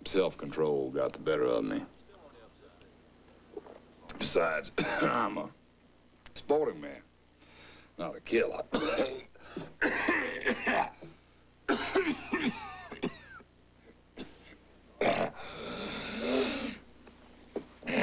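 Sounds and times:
man coughing: 4.8s - 5.3s, 8.7s - 11.0s, 11.7s - 13.4s, 14.2s - 15.4s.

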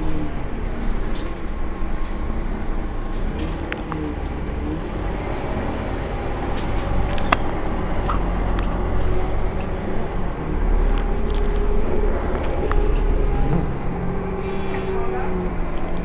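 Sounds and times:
bus engine rumbling: 0.0s - 16.0s
faint whine: 0.0s - 16.0s.

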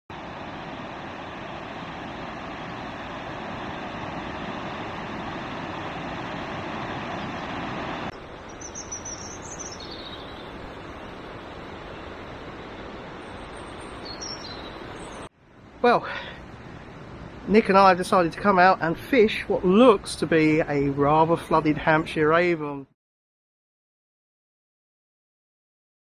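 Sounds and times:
steady rushing noise: 0.1s - 20.3s
high bird chirps: 8.4s - 10.6s, 13.2s - 15.3s.

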